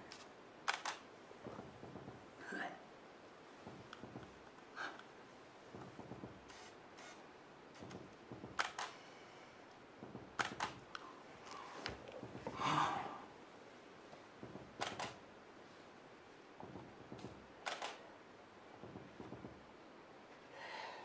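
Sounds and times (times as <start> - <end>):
camera shutter clicks: 0.1 - 1.0, 8.6 - 9.0, 10.4 - 10.8, 14.8 - 15.2, 17.6 - 18.0
soft breathy rush: 8.8 - 9.8, 11.0 - 13.4, 20.4 - 21.0.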